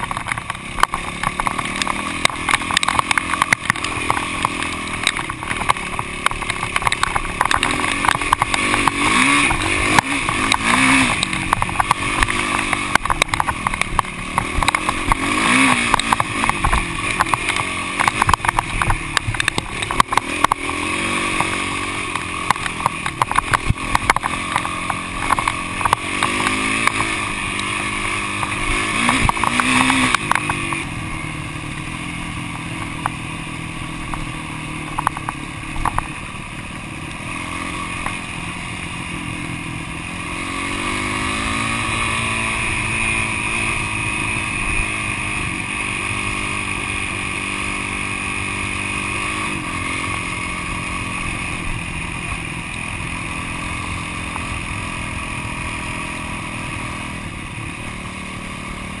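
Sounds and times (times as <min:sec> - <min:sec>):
sharp knocks and rattles: 0:00.0 - 0:30.9
dirt bike engine running: 0:00.0 - 0:59.0.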